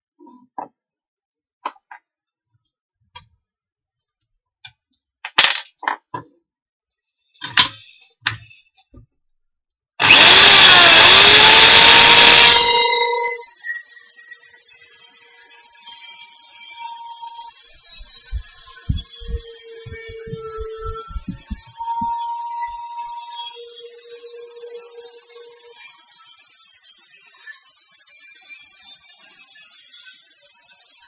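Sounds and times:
electric drill boring into wood: 10.0s - 13.7s, 17.9s - 22.2s
drill whine spinning down: 10.0s - 31.0s.

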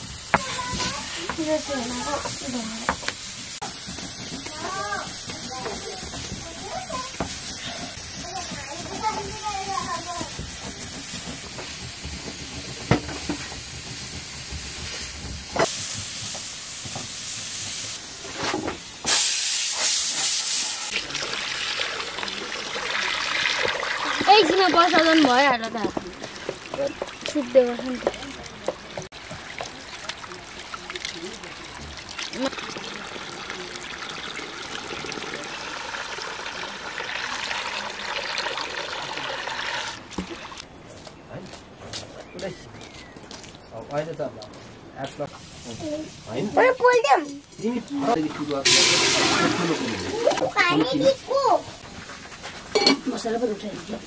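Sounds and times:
water running from pipe splashing: 0.0s - 18.2s, 19.0s - 40.6s, 46.3s - 51.7s
pressure cooker steam hissing: 0.0s - 25.6s, 48.2s - 51.6s
water poured from pot: 19.8s - 40.6s, 48.5s - 50.4s.

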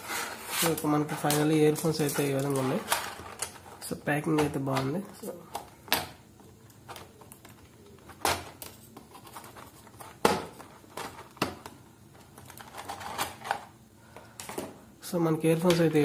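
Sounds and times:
plastic packaging crinkling: 0.6s - 4.0s.

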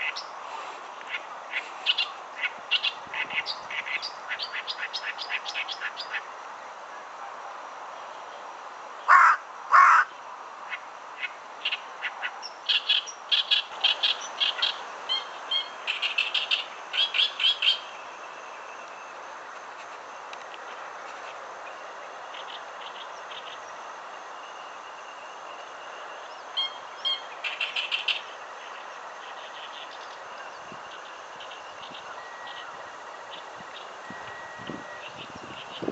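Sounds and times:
warbler harsh chattering song: 0.0s - 6.3s, 9.1s - 18.0s, 26.2s - 35.9s.

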